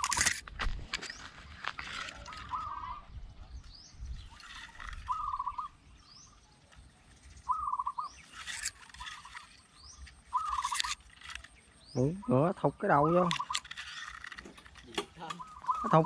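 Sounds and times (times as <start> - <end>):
doves cooing: 0.0 - 0.3, 1.7 - 3.2, 4.3 - 5.9, 7.4 - 11.4, 12.0 - 16.0
rustling noise: 0.0 - 2.8
thin high bird chirps: 0.9 - 16.0.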